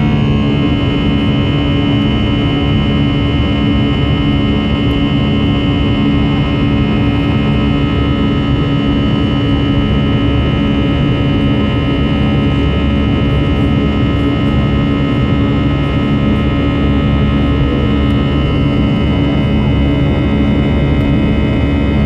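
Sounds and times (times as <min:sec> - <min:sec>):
jet engines roaring in cabin: 0:00.0 - 0:22.0.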